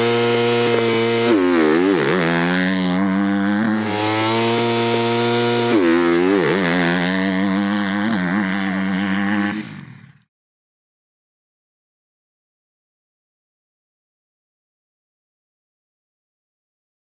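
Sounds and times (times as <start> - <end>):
motocross bike engine: 0.0 - 10.3.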